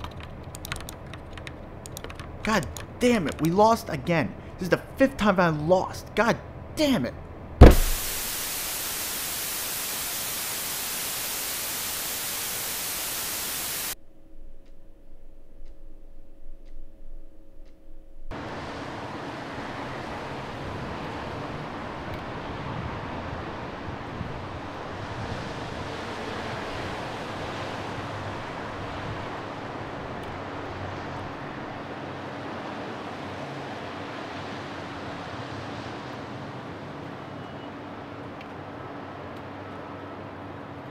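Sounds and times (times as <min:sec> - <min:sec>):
faint hum: 0:00.2 - 0:19.0
tv static hiss: 0:07.6 - 0:14.0
soft ticks: 0:15.6 - 0:15.8, 0:16.5 - 0:17.0
distant traffic: 0:18.3 - 0:40.9.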